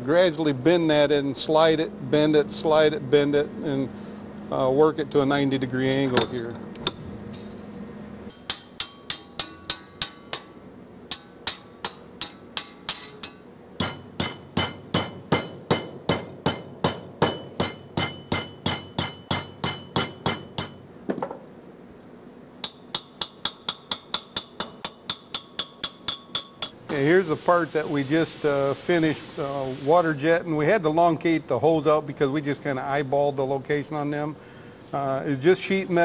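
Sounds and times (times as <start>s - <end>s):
hammer striking sheet metal: 8.3s - 20.8s.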